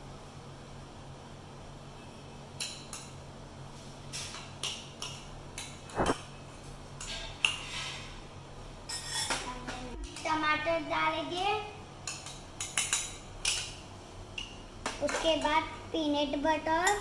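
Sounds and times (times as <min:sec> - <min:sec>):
metal spoon scraping and tapping bowl: 0:08.9 - 0:09.4, 0:12.0 - 0:13.8.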